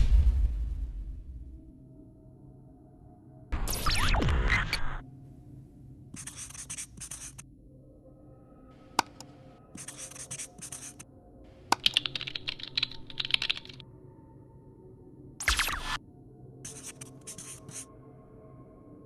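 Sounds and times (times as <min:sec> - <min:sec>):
marker scratching: 0:06.2 - 0:07.4, 0:09.8 - 0:11.0, 0:16.6 - 0:17.9
mouse click: 0:09.0 - 0:09.3
keyboard typing: 0:11.7 - 0:13.8.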